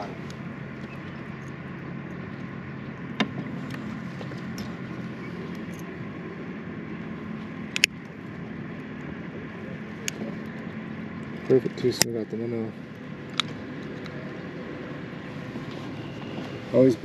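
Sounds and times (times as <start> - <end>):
boat motor humming: 0.0 - 17.0.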